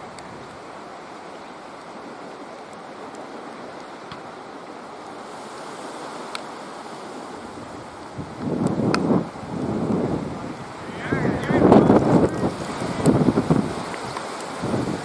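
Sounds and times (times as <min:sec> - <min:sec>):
faint ticks: 0:06.2 - 0:06.5
wind noise on microphone: 0:07.1 - 0:15.0.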